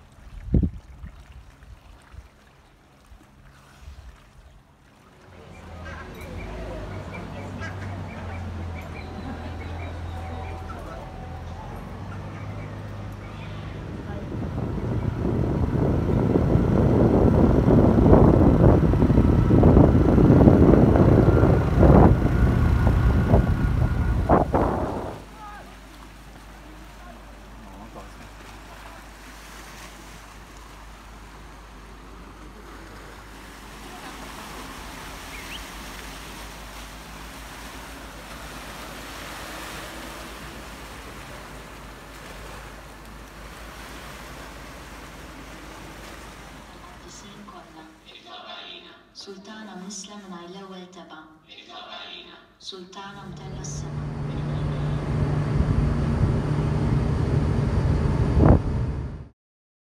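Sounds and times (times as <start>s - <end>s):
wind buffeting microphone: 0.2s - 1.8s, 12.0s - 25.3s, 53.8s - 59.2s
sea waves washing into rocky gully: 24.4s - 47.1s.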